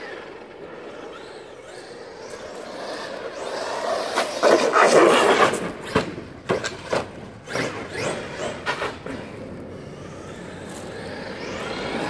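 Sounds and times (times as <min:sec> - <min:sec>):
electric toy truck motor whine: 0:00.0 - 0:04.2, 0:07.4 - 0:12.0.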